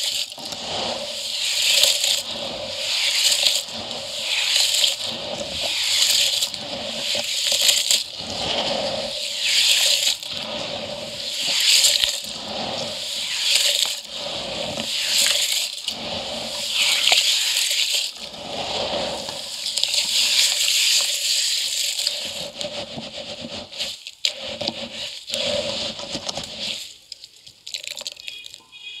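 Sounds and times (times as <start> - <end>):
hands sloshing wet concrete in bucket: 0.0 - 27.1
small drips and splats: 26.3 - 28.8.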